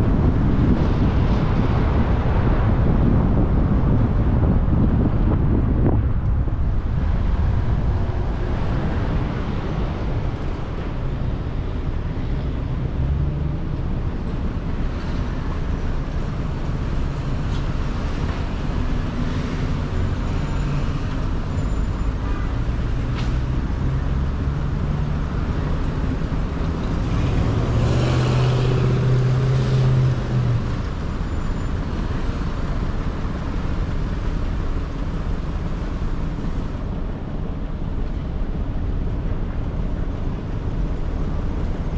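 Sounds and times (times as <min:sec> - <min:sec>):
road rumble inside car: 0:00.0 - 0:41.9.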